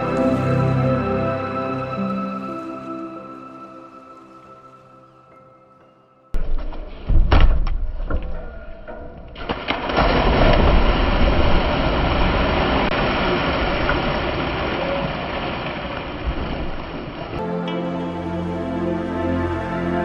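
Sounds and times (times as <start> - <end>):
people splashing into water: 9.4 - 17.4.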